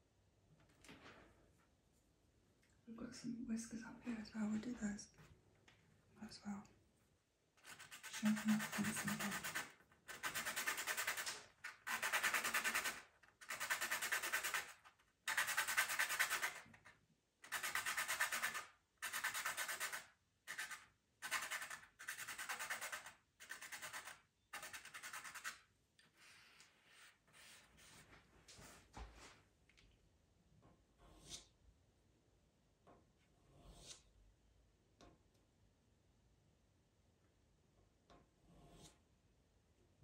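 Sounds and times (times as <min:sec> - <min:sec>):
pencil being sharpened: 0:07.6 - 0:25.7.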